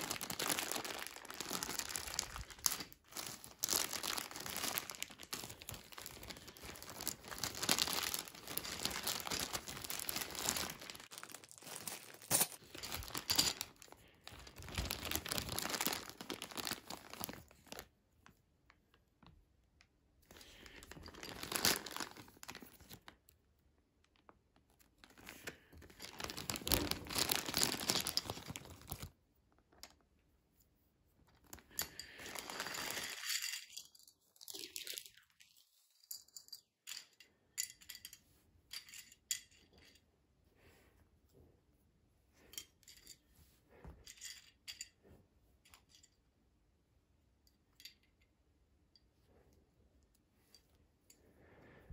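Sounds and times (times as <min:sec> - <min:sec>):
plastic bag crinkling: 0:00.0 - 0:17.9, 0:20.4 - 0:23.2, 0:25.0 - 0:29.2, 0:31.4 - 0:33.8.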